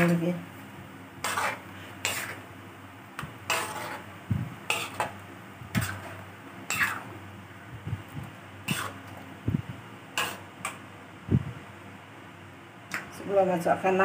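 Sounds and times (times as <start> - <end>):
steady low hum: 0.0 - 14.0
metal spatula scraping a wok: 1.2 - 2.5, 3.4 - 7.1, 8.6 - 9.1, 10.2 - 10.5.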